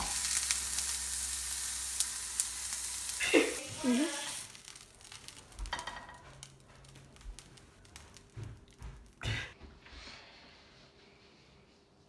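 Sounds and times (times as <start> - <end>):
food sizzling: 0.0 - 9.2.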